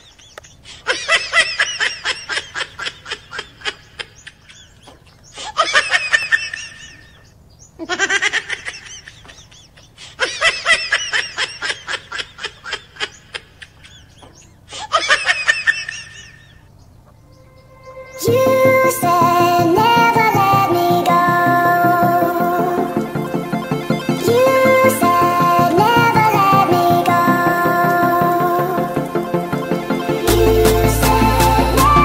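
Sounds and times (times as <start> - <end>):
person laughing: 7.8 - 9.5.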